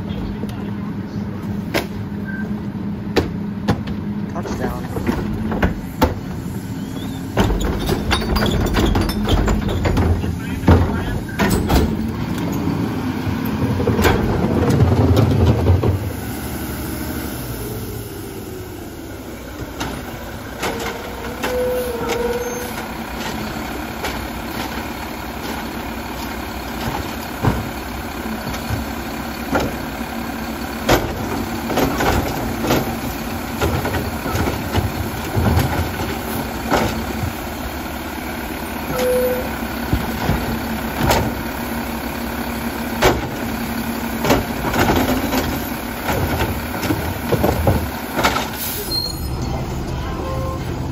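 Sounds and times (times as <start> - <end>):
garbage truck idling: 0.0 - 50.9
short squeal: 6.8 - 9.8, 20.7 - 22.8, 38.9 - 39.5, 48.6 - 49.6
knocks and bangs of cart: 7.3 - 12.1, 13.6 - 16.1, 26.7 - 28.9, 30.8 - 37.4, 39.9 - 41.4, 43.0 - 43.5, 44.2 - 48.6.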